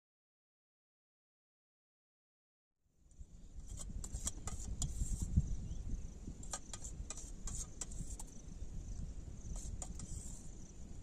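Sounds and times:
high insect hum: 0:03.0 - 0:11.0
wind rumbling on microphone: 0:03.1 - 0:11.0.

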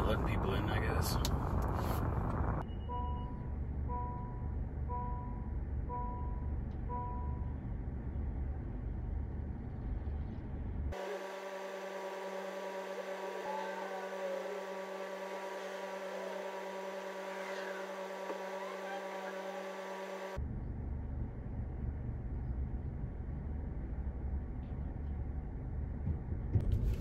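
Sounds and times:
vehicle idling rumble: 0:00.0 - 0:02.6
steady hum of fixed tones: 0:02.4 - 0:26.6.

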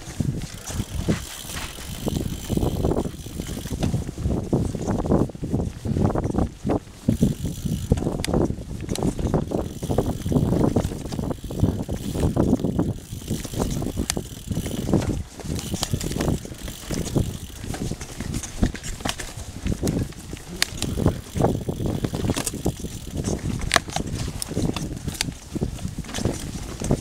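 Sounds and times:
tyres crunching over dirt and leaves: 0:00.0 - 0:04.9
bike rattling and clicking: 0:00.0 - 0:27.0.

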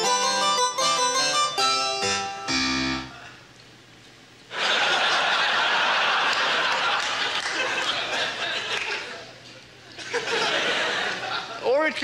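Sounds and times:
keyboard chords: 0:00.0 - 0:03.3
audience laughter: 0:04.5 - 0:11.6.

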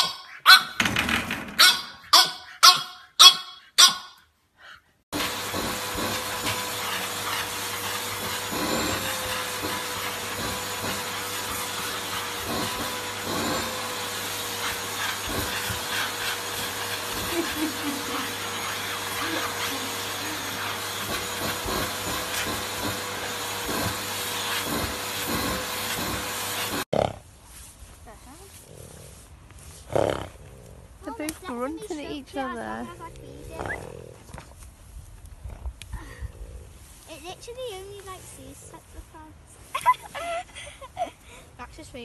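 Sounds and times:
vacuum cleaner running: 0:05.1 - 0:26.9.

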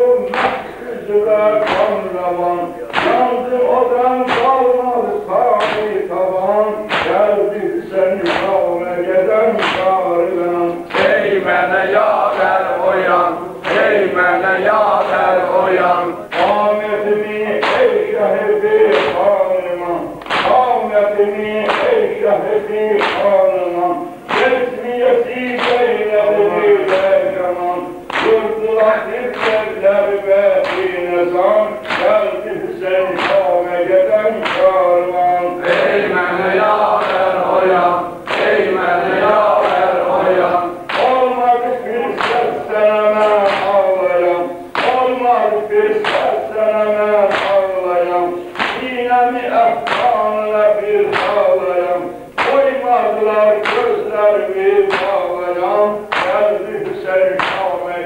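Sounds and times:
men chanting elegy: 0:00.0 - 0:58.0
hands slapping chests: 0:00.3 - 0:00.7, 0:01.6 - 0:02.0, 0:02.9 - 0:03.3, 0:04.3 - 0:04.6, 0:05.6 - 0:05.9, 0:06.9 - 0:07.3, 0:08.2 - 0:08.6, 0:09.6 - 0:10.0, 0:13.6 - 0:14.1, 0:20.2 - 0:20.7, 0:23.0 - 0:23.3, 0:24.3 - 0:24.6, 0:25.6 - 0:26.0, 0:28.1 - 0:28.4, 0:30.6 - 0:31.0, 0:31.8 - 0:32.2, 0:33.2 - 0:33.5, 0:38.3 - 0:41.2, 0:44.7 - 0:45.0, 0:46.0 - 0:46.3, 0:47.3 - 0:47.6, 0:48.6 - 0:48.9, 0:54.9 - 0:55.2, 0:56.1 - 0:56.4, 0:57.4 - 0:57.7.

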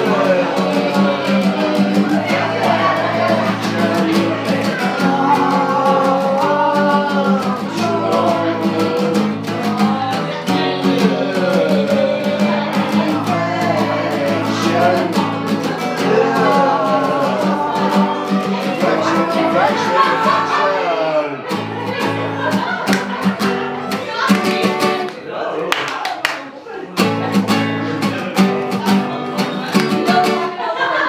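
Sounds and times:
man singing: 0:00.0 - 0:21.5
acoustic guitar strummed: 0:00.0 - 0:25.2, 0:26.9 - 0:30.8.

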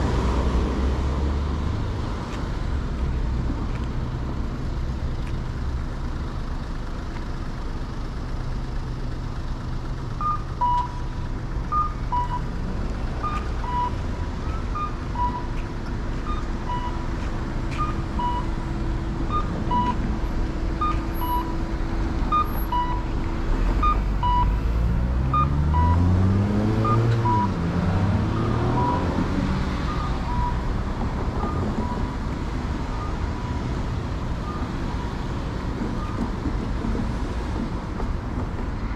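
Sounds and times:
street traffic: 0:00.0 - 0:38.9
vehicle engine pulling away: 0:18.2 - 0:35.7.

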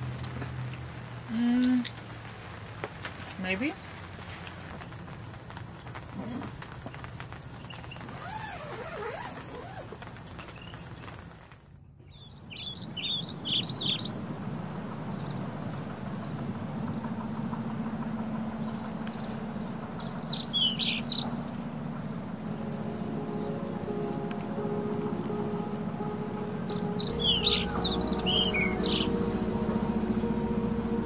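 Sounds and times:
birds chirping: 0:00.0 - 0:31.0
steady low hum: 0:13.2 - 0:31.0
high-pitched whine: 0:14.4 - 0:31.0.

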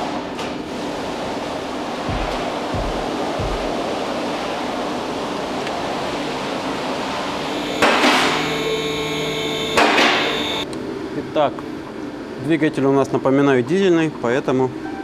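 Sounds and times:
car lift motor hum: 0:06.5 - 0:10.6.

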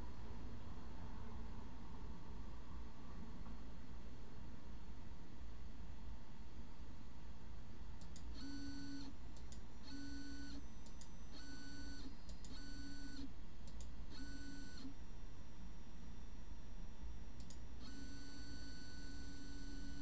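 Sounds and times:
short clicks: 0:08.0 - 0:09.7, 0:12.3 - 0:14.9, 0:17.4 - 0:18.0.

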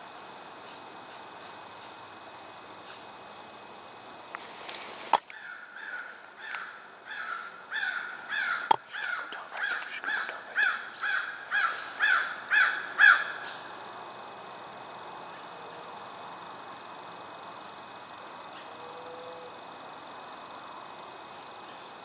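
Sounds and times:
bird calling: 0:05.3 - 0:13.6
sharp clicks: 0:08.7 - 0:10.3.

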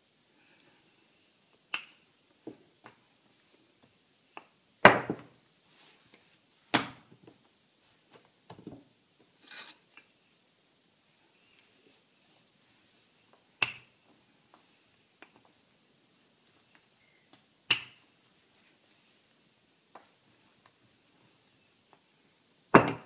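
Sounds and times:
rolling pin knocking on stone: 0:22.8 - 0:23.0.

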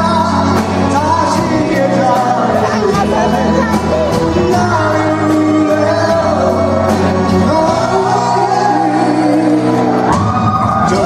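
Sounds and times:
man singing into microphone: 0:00.0 - 0:11.0
rock band playing: 0:00.0 - 0:11.0.

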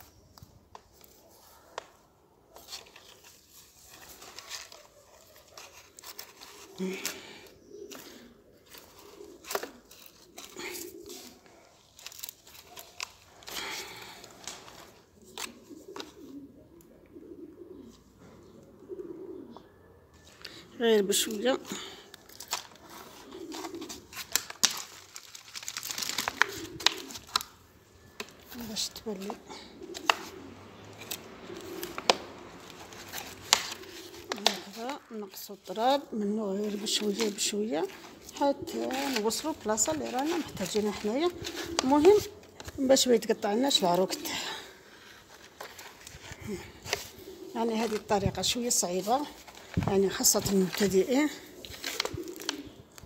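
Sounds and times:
rustling of leaves and soil: 0:00.0 - 0:16.5, 0:20.2 - 0:53.0
hands scraping dry soil: 0:31.0 - 0:42.9.

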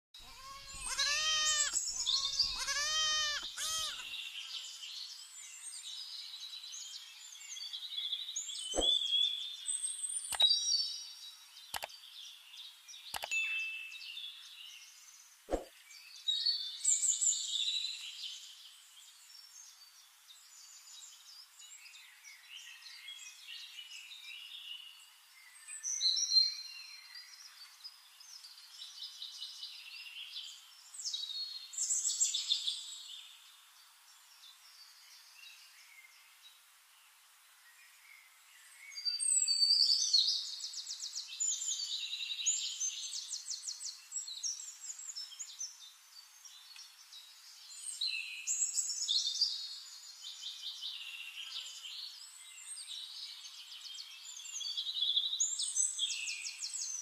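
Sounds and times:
small birds chirping and singing: 0:00.2 - 0:57.0
sharp clicks: 0:11.7 - 0:11.9, 0:13.1 - 0:13.3.

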